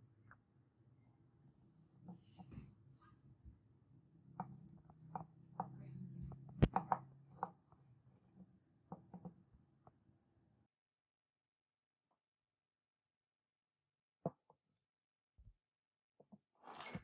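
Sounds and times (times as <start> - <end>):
faint low hum: 0.0 - 10.7.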